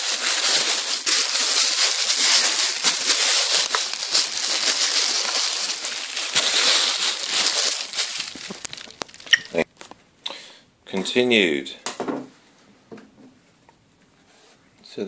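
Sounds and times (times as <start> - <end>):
packaging crinkling and rustling: 0.0 - 10.0.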